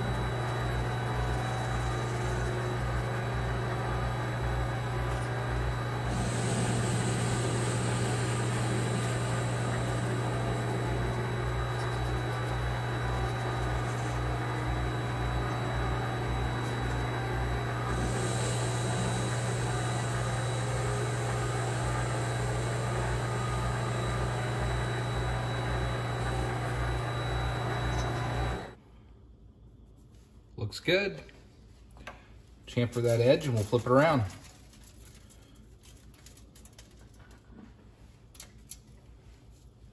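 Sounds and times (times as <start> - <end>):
lathe cutting hiss: 0.0 - 28.8
lathe motor hum and whine: 0.0 - 28.8.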